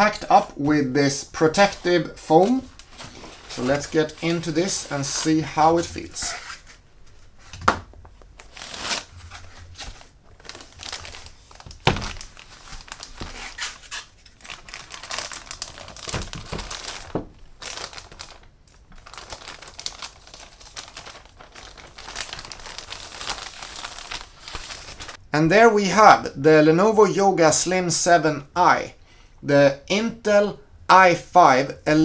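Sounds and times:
plastic bag crinkling: 1.5 - 6.3, 8.3 - 25.2.

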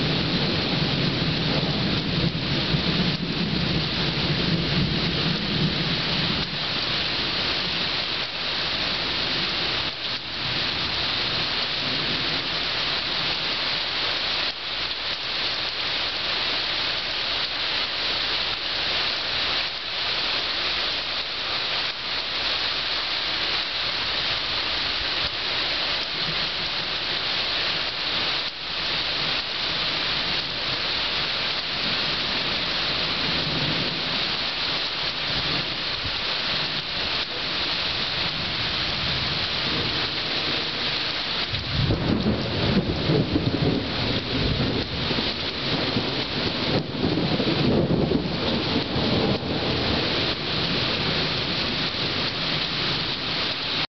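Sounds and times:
thunder rumble: 0.0 - 13.6, 28.9 - 53.9
rain pouring: 0.0 - 53.9.

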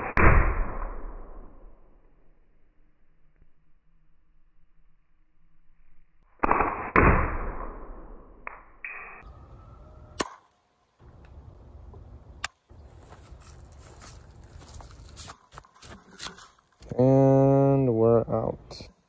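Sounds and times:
sharp crack: 6.4 - 8.7, 10.2 - 10.6, 12.4 - 12.6.

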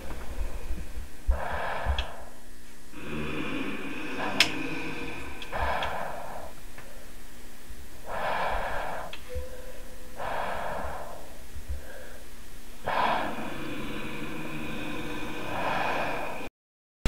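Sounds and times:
person breathing heavily: 0.0 - 16.5
steady low hum: 0.0 - 16.5.

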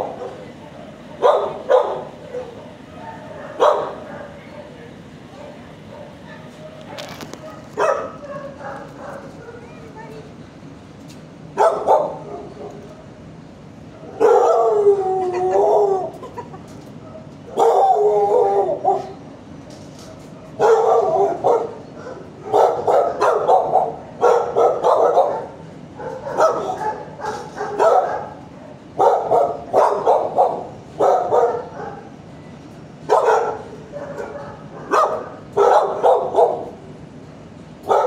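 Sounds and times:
dog barking: 0.0 - 9.7, 11.6 - 13.1, 13.9 - 14.8, 17.0 - 19.2, 20.1 - 28.4, 29.0 - 32.1, 33.1 - 36.8.

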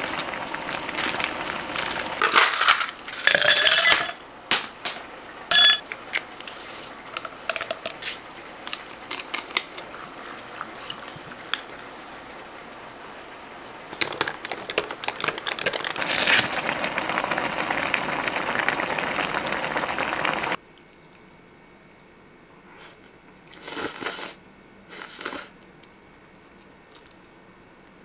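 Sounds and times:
sparkling water pouring and fizzing: 0.0 - 4.2, 6.5 - 20.6.

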